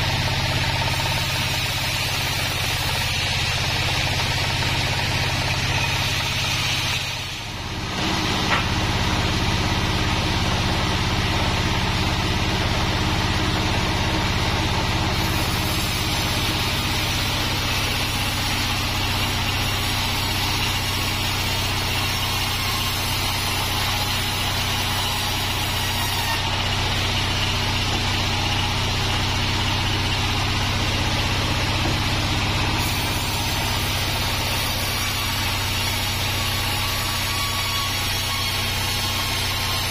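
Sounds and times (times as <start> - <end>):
band saw humming: 0.0 - 39.9.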